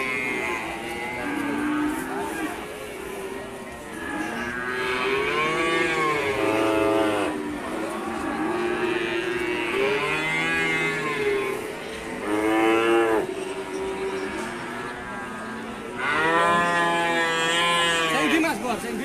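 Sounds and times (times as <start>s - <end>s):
cattle mooing: 3.9s - 18.4s.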